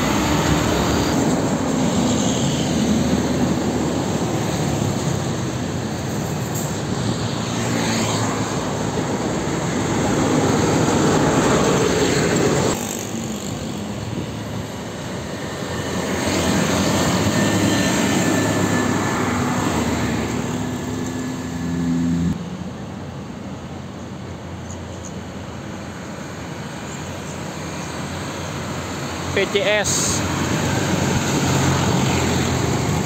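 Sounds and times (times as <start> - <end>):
dump trucks driving past: 0.0 - 24.5, 25.3 - 33.0.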